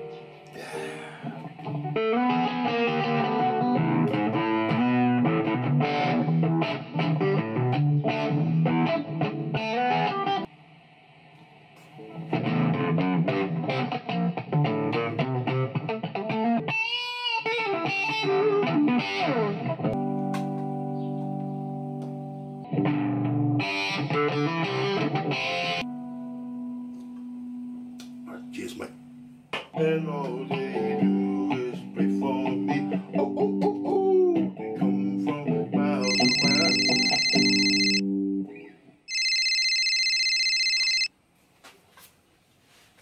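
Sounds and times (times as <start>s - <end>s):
distorted electric guitar: 0.0s - 10.4s, 11.9s - 28.2s.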